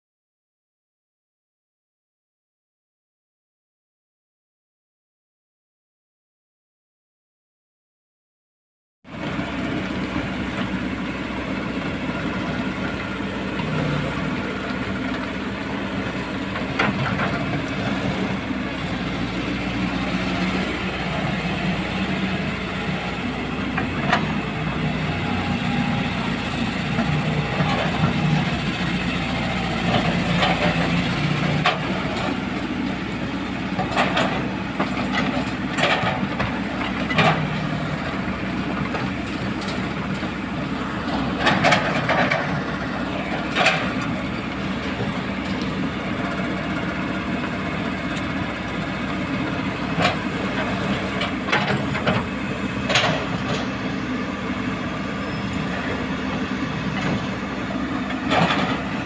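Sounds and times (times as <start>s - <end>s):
excavator diesel engine running: 9.1s - 59.0s.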